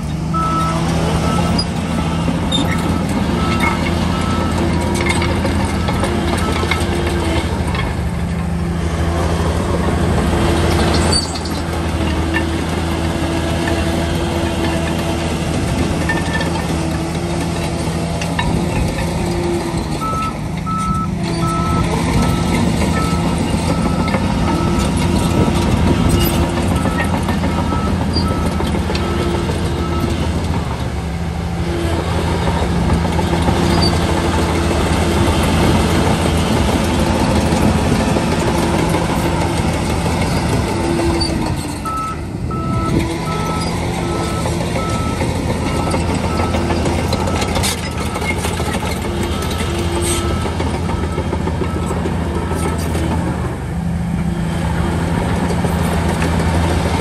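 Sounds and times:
bulldozer diesel engine: 0.0 - 57.0
reversing alarm beeping: 0.3 - 6.8, 20.0 - 30.3, 41.1 - 52.8.

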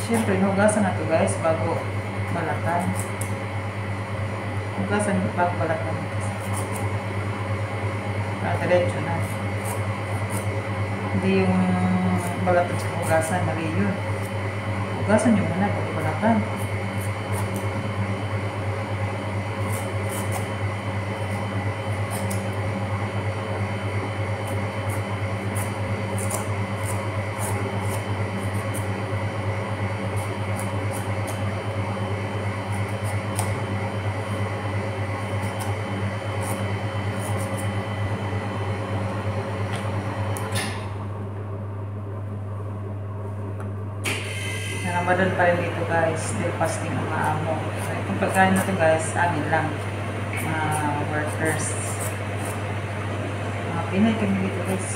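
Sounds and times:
machine hum: 0.0 - 54.9
knife scraping gourd skin: 2.3 - 3.4, 6.2 - 7.0, 8.5 - 10.6, 11.5 - 14.4, 15.4 - 18.2, 19.4 - 22.7, 24.3 - 37.9, 45.2 - 52.8.

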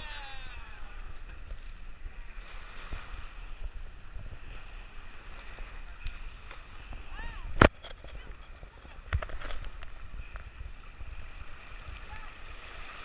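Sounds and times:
faint water splashes: 0.0 - 13.0
small waves washing ashore: 0.0 - 13.0
wind buffeting microphone: 0.0 - 13.0.

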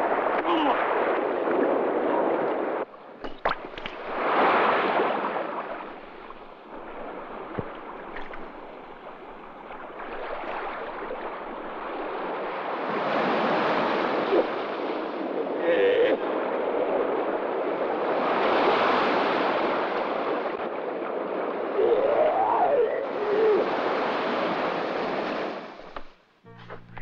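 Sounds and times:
river water rushing over rocks: 3.0 - 5.0, 5.7 - 12.4.

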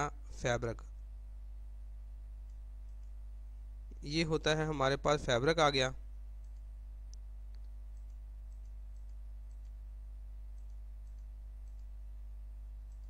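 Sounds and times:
steady low hum: 0.0 - 13.0
computer mouse clicks: 2.4 - 3.2, 6.4 - 9.8, 10.5 - 12.0.

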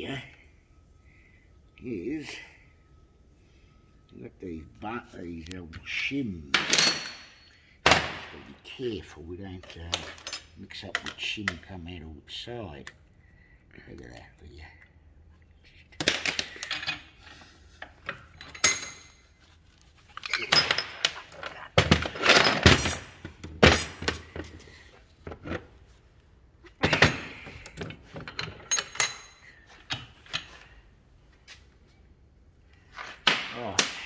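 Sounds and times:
metal parts clanking on workbench: 6.5 - 8.4, 20.2 - 25.6.

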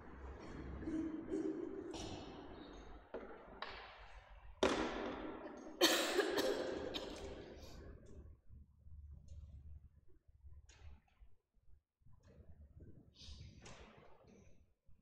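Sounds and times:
knocks and thuds echoing: 0.8 - 5.8.

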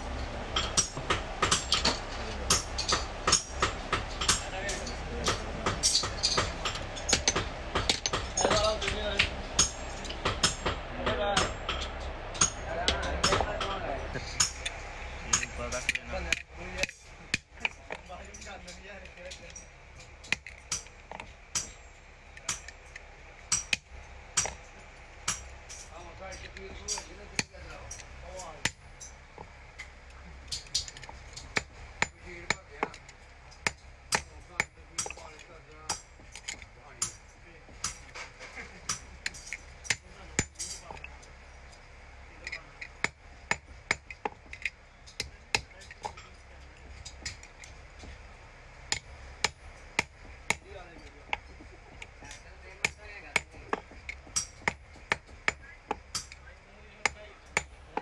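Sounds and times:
hammer striking metal padlock: 0.5 - 13.7
metal parts knocking on steel: 0.5 - 21.8.

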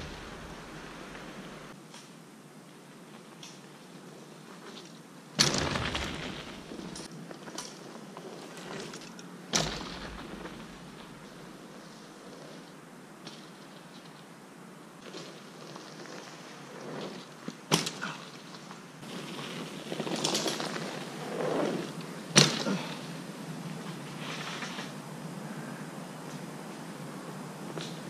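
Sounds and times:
rushing noise: 0.0 - 1.8.

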